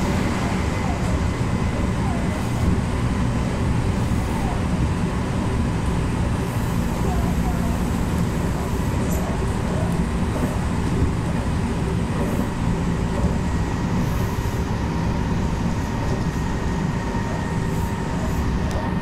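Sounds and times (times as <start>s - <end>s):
train wheels rumbling: 0.0s - 19.0s.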